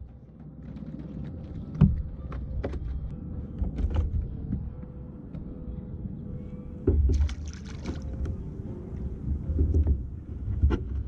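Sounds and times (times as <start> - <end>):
water against a kayak: 7.0 - 8.4.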